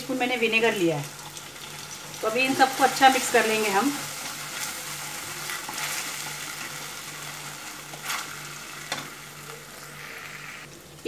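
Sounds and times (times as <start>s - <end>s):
sauce sizzling in a frying pan: 0.0s - 11.0s
wooden spatula scraping a pan: 4.1s - 6.7s, 7.4s - 9.0s.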